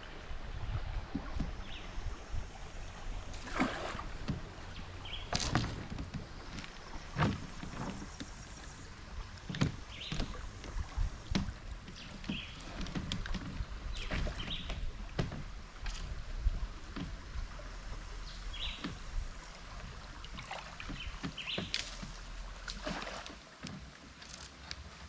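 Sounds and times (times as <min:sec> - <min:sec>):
water lapping against raft: 0:00.0 - 0:25.0
knocks on raft: 0:09.5 - 0:15.5.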